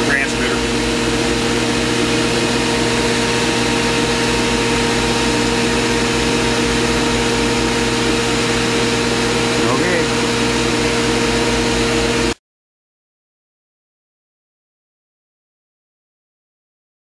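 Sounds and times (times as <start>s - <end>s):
machine hum: 0.0s - 12.4s.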